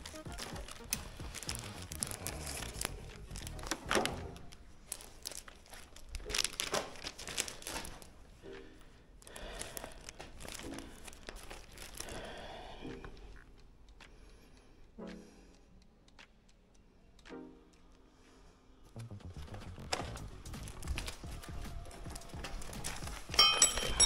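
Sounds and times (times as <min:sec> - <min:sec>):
crinkling and rustling: 0:00.0 - 0:14.2, 0:19.0 - 0:24.0
clicks and crackles: 0:00.0 - 0:18.0, 0:18.9 - 0:24.0.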